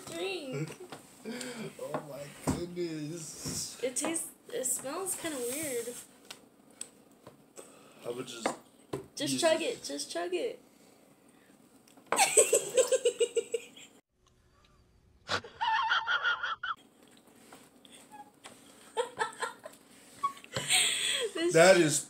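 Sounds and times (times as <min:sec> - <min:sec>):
person laughing: 0:12.2 - 0:13.8, 0:15.3 - 0:16.8.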